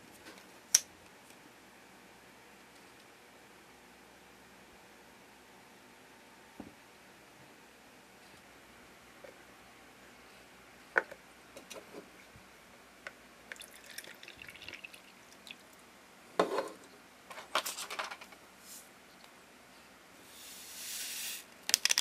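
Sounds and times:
water pouring and splashing: 0:13.5 - 0:15.4
hard plastic pieces clacking: 0:21.6 - 0:22.0.

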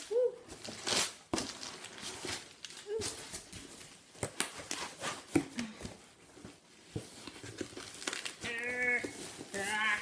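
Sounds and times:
packing paper crinkling: 0:00.0 - 0:05.0, 0:07.1 - 0:10.0.

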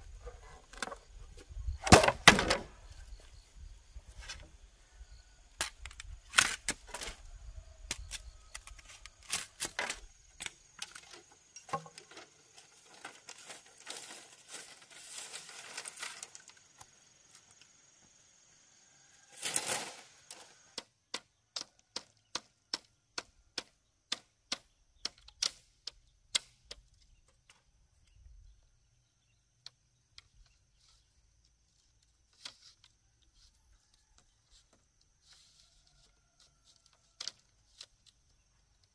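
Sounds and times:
bamboo knocks and clatter: 0:00.2 - 0:03.3, 0:07.9 - 0:16.9
rustling: 0:10.8 - 0:16.8.

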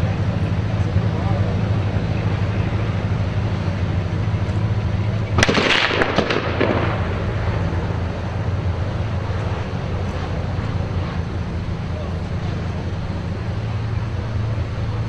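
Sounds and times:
low rumble: 0:00.0 - 0:15.0
gunfire cracks: 0:05.4 - 0:07.9.

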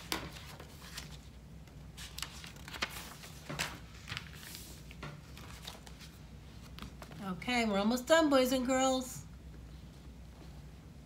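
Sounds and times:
paper rustles and taps: 0:00.0 - 0:01.2, 0:02.0 - 0:07.2.

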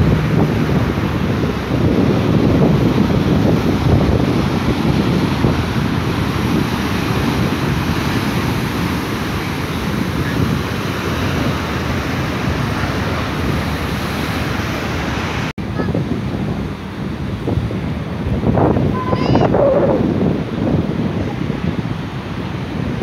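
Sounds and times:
surf breaking on rocks: 0:00.0 - 0:16.8
wind rumbling on microphone: 0:00.0 - 0:23.0.

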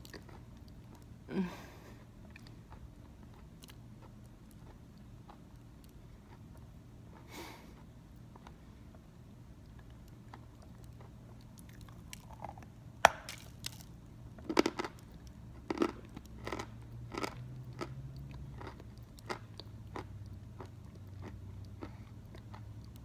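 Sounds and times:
crisp chewing crunches: 0:09.6 - 0:23.0.

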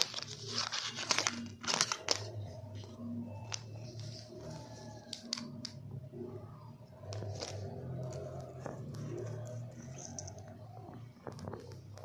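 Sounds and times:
plastic tubes clicking and tapping: 0:04.4 - 0:05.8, 0:07.0 - 0:12.0.

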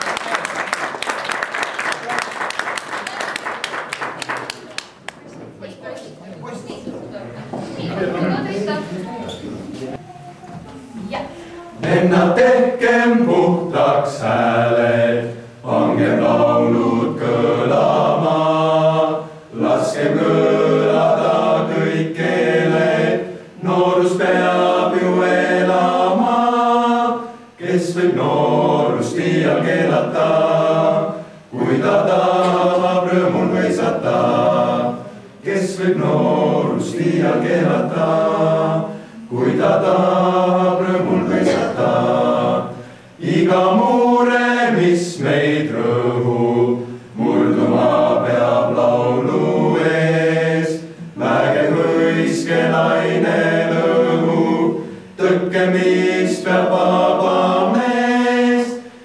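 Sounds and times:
boys' choir singing a cappella: 0:11.1 - 0:59.0.

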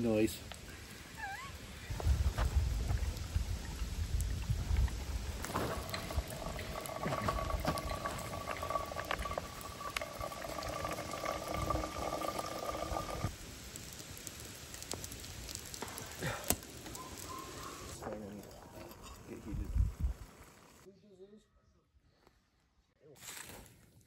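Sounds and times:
water boiling in kettle: 0:02.6 - 0:18.1
kettle singing tone: 0:05.4 - 0:13.3.

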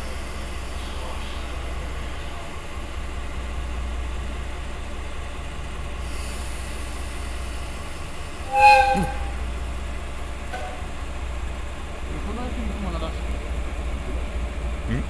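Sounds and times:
diesel locomotive idling: 0:00.0 - 0:15.0
locomotive horn blast: 0:08.4 - 0:09.6, 0:10.5 - 0:11.1.

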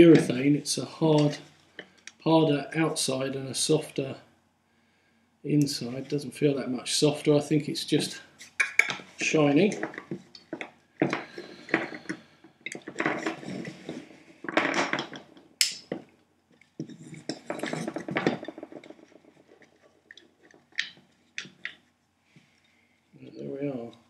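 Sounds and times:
plastic parts rubbing and scraping: 0:08.4 - 0:15.4, 0:16.8 - 0:21.8.

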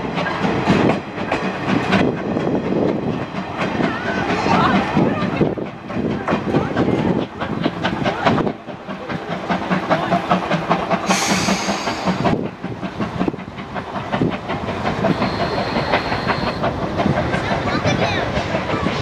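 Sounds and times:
steam hissing: 0:00.0 - 0:19.0
steam locomotive chuffing: 0:00.0 - 0:19.0.

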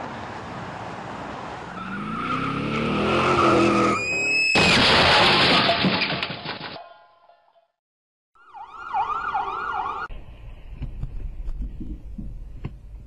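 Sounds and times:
road noise: 0:00.0 - 0:05.4, 0:08.4 - 0:13.0
engine revving: 0:01.8 - 0:04.0
vehicle crash crunching: 0:03.5 - 0:06.9.

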